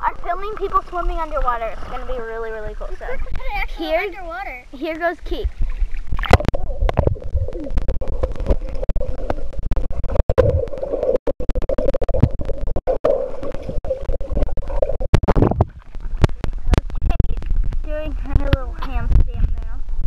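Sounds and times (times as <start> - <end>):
bubbles crackling and clicking: 0.0 - 3.8, 5.3 - 20.0
muffled underwater hum: 11.6 - 20.0.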